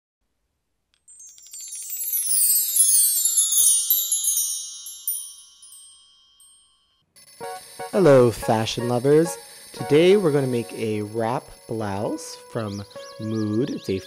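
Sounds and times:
magic sparkle chimes: 0:01.0 - 0:14.0.

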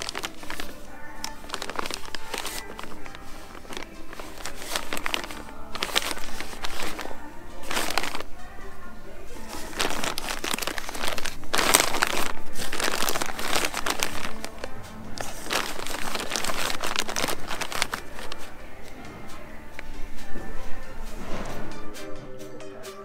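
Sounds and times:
plastic packaging crinkling: 0:00.0 - 0:08.6, 0:09.3 - 0:18.6
music playing: 0:00.0 - 0:23.0.

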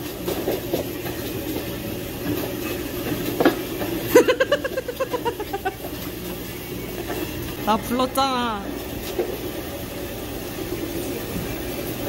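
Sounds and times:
person laughing: 0:04.1 - 0:05.9.

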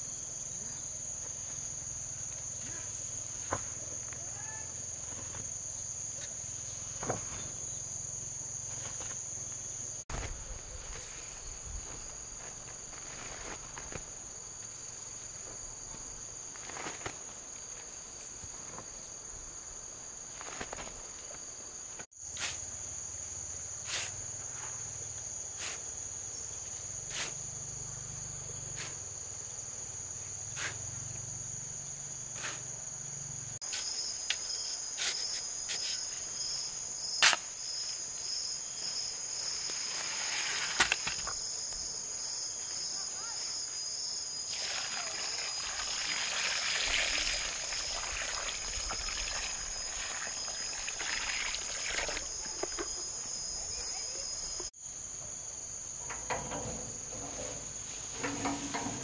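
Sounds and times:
insect chorus: 0:00.0 - 0:59.0
hoe scraping through gravel: 0:39.8 - 0:41.0.

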